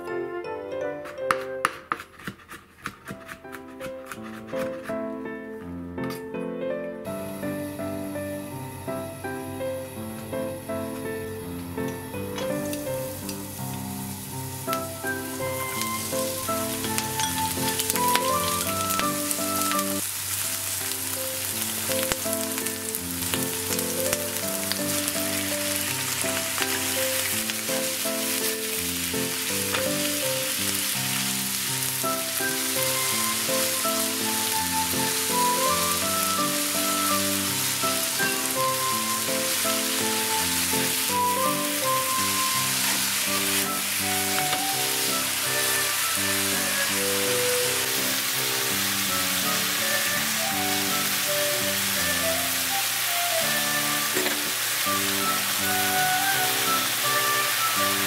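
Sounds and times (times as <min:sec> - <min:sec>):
background music with melody: 0:00.0 - 0:02.0, 0:03.3 - 0:20.0, 0:20.7 - 0:58.0
oil sizzling in a frying pan: 0:07.1 - 0:58.0.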